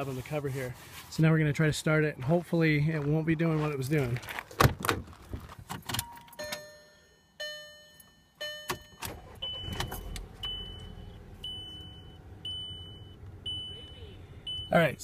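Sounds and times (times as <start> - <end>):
dashboard warning chimes: 6.0 - 15.0
high warning beep: 6.0 - 15.0
car engine starting and idling: 8.4 - 15.0.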